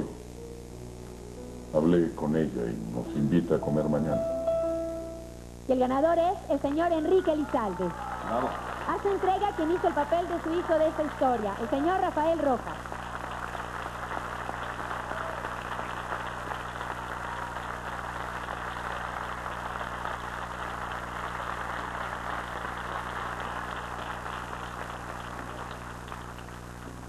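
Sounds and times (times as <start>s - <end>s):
low electrical hum: 0.0s - 27.0s
audience applauding: 6.6s - 27.0s.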